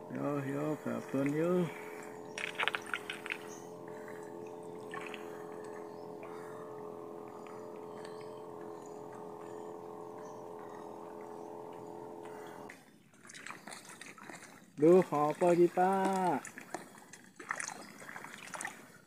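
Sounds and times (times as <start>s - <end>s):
drone of held tones: 0.0s - 12.9s.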